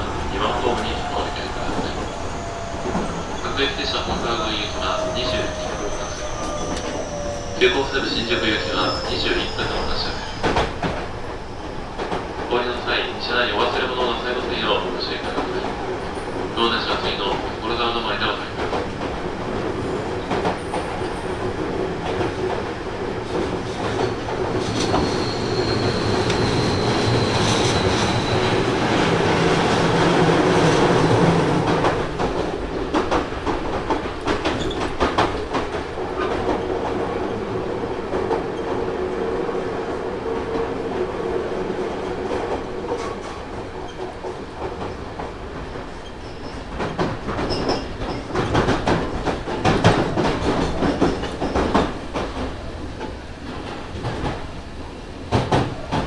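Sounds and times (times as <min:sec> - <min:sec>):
high wheel squeal: 0:00.4 - 0:10.7, 0:24.7 - 0:28.6.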